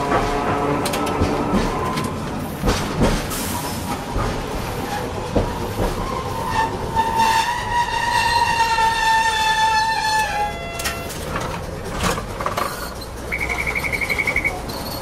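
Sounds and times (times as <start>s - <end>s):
tram wheels knocking over rails: 0.0s - 6.2s
tram motor whine: 0.0s - 15.0s.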